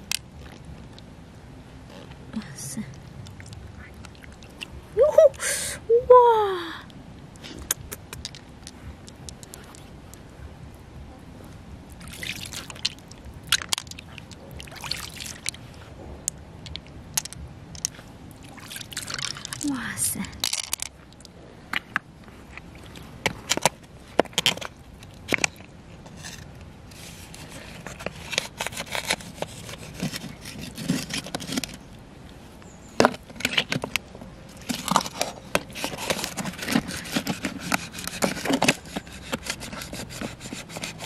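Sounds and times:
knife scraping shell: 25.3s - 31.8s, 33.0s - 41.0s.

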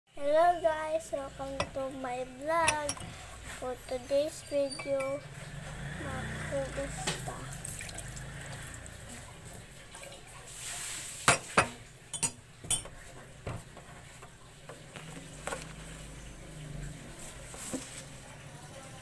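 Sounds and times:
spoon clinking against ceramic cup: 4.4s - 5.3s, 11.3s - 12.9s.

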